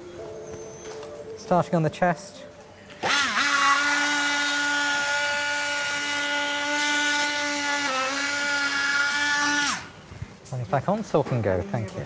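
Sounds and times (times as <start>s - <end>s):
electric saw whining: 3.0s - 10.0s.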